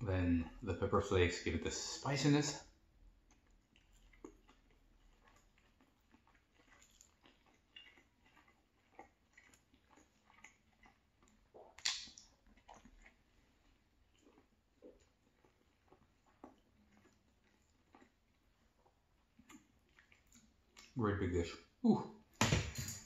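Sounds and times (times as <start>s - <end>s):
faint chewing with mouth clicks: 2.6s - 21.0s.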